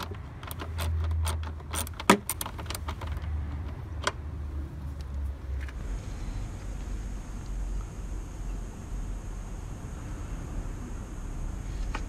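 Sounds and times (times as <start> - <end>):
wrench clicking on metal: 0.0 - 4.2.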